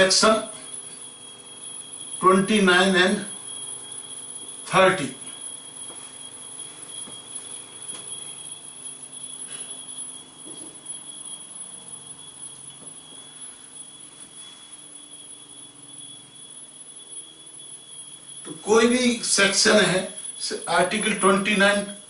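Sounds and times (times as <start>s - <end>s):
high-pitched electronic whine: 0.0s - 22.0s.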